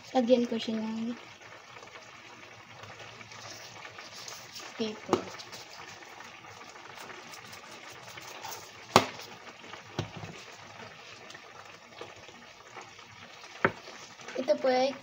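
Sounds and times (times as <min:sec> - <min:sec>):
sauce bubbling in skillet: 0:00.0 - 0:15.0
wooden spatula stirring pan: 0:02.8 - 0:15.0.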